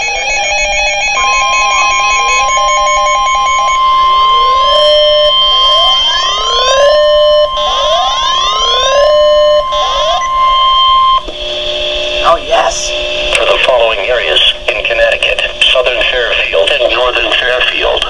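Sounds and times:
rising siren-like sweep: 0.0 - 12.2
steady warning alarm tone: 0.0 - 18.0.

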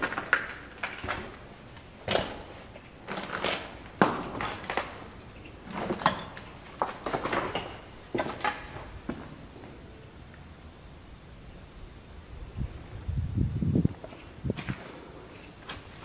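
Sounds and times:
footsteps crunching on concrete: 13.9 - 16.0.

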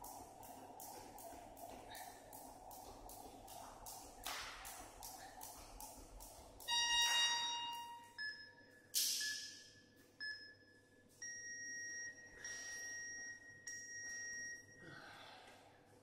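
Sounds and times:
timer beeps: 6.6 - 14.8.

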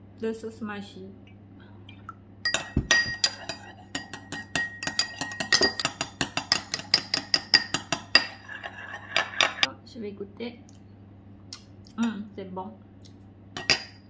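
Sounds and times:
metal spoon clinking in ceramic bowl: 2.5 - 9.7, 13.6 - 14.0.

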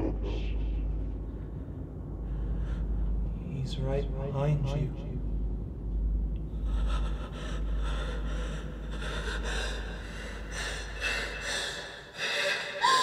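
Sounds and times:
low rumbling drone: 0.0 - 13.0
heavy frightened breathing and gasps: 6.6 - 13.0.

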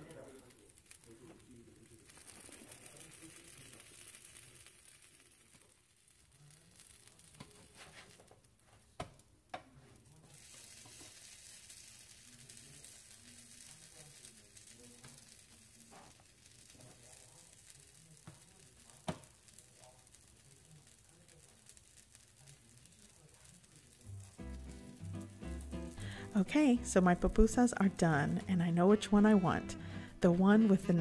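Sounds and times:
food sizzling on griddle: 0.0 - 31.0
spatula clacking on griddle: 17.9 - 19.7.

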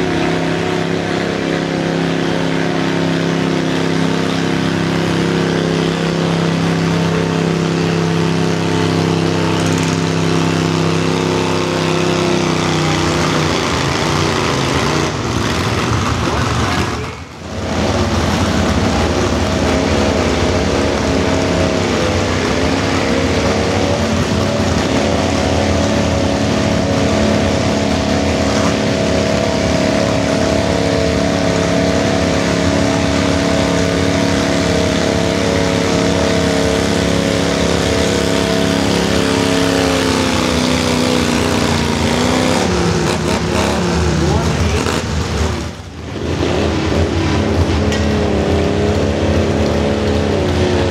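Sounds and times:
engine running at high revs: 0.0 - 50.9.

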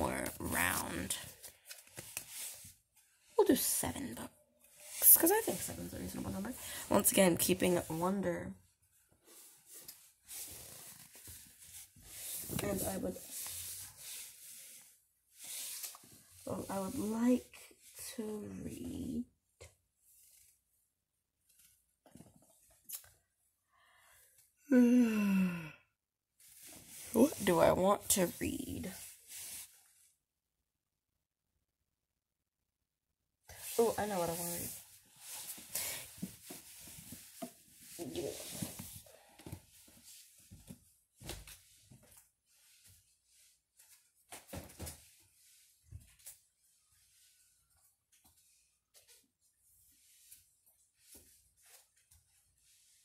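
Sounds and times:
boy sighing hmm: 24.6 - 25.9.

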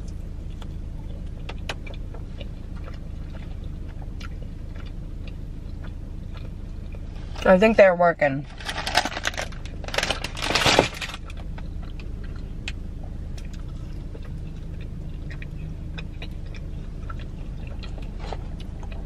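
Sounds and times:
soft chewing: 0.0 - 7.5, 11.2 - 19.0
car engine hum inside cabin: 0.0 - 19.0.

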